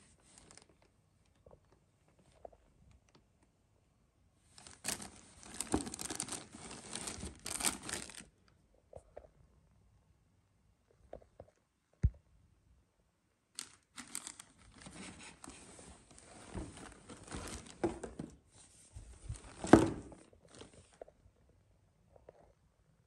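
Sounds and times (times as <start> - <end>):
plastic bag crinkling: 4.6 - 8.3, 13.6 - 18.2, 19.3 - 21.0.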